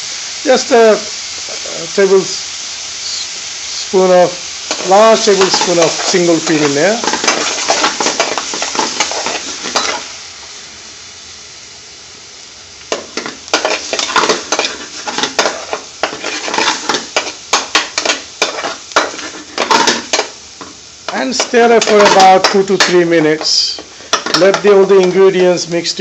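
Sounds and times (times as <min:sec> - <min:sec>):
food sizzling in a frying pan: 0:00.0 - 0:26.0
metal spoon scraping a pan: 0:04.6 - 0:10.1, 0:12.9 - 0:25.2.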